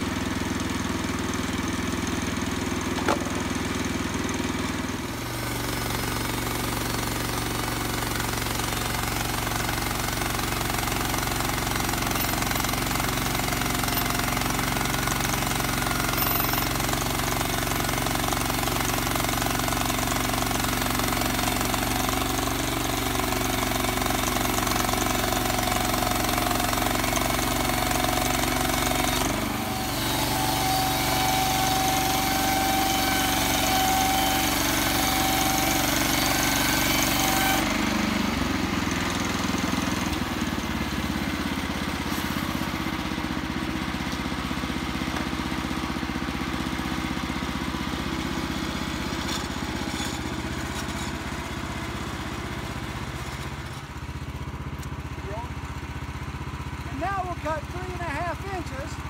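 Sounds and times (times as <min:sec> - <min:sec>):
gasoline engine running: 0:00.0 - 0:32.0, 0:37.6 - 0:59.0
band blade cutting log whine: 0:25.4 - 0:39.0.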